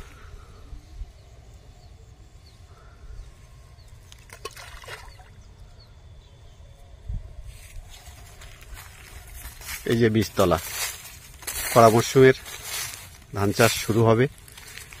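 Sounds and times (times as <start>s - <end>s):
groundbait plopping into water: 4.1s - 5.3s.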